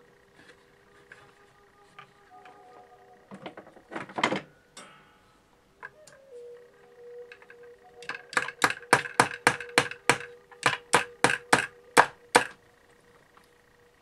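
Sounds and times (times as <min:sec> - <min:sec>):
small hammer tapping: 0:08.0 - 0:12.6.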